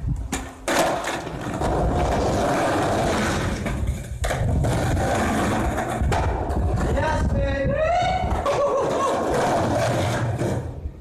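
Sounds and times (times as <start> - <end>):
skateboard wheels rolling on concrete: 0.0 - 11.0
sharp skateboard clack: 0.3 - 7.1.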